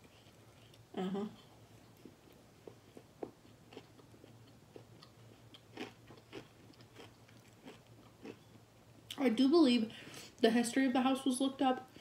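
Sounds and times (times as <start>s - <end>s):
crunchy chips being chewed: 2.2s - 8.5s.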